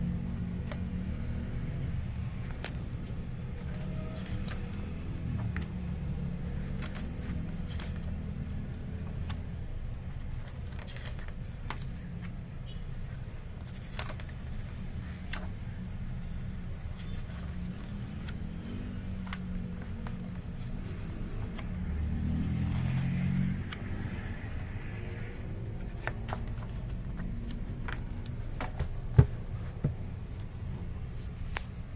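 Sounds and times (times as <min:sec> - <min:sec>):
book pages turning: 0:00.1 - 0:31.9
book closing with a knock: 0:27.9 - 0:30.1.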